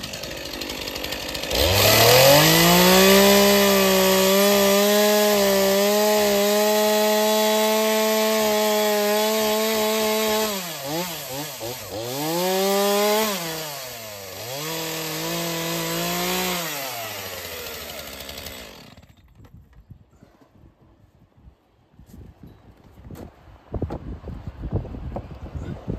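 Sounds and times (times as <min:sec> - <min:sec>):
chainsaw cutting wood: 0:00.0 - 0:19.6.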